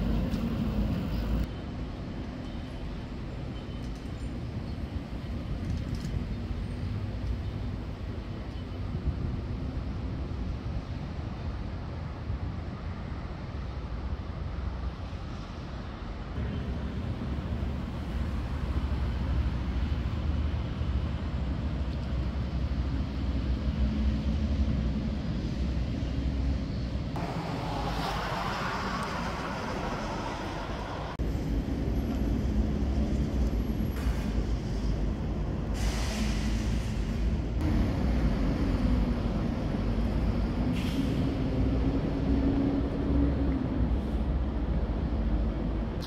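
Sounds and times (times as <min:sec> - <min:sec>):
road traffic rumble: 0:00.0 - 0:46.0
heavy vehicle engine droning: 0:27.2 - 0:31.8
short hiss: 0:35.8 - 0:37.2.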